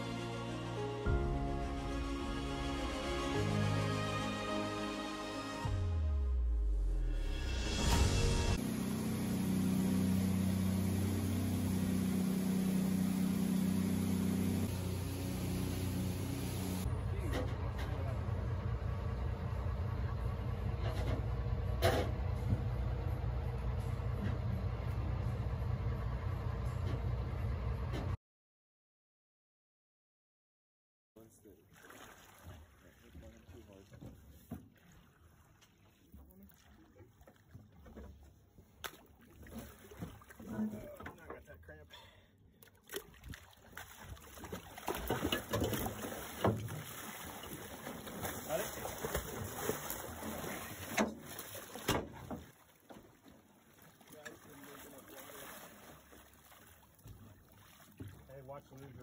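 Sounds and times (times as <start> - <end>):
boat engine idling: 8.6 - 28.2
water splashing and sloshing: 31.4 - 41.8, 42.4 - 59.0.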